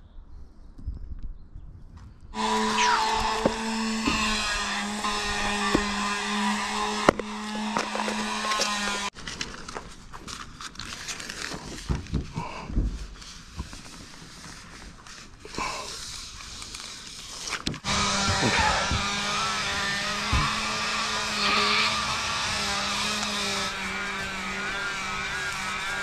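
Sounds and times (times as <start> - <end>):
tape crinkling and clicking: 7.1 - 12.2, 16.0 - 17.8
paper backing peeled off: 7.4 - 11.9, 13.1 - 19.9.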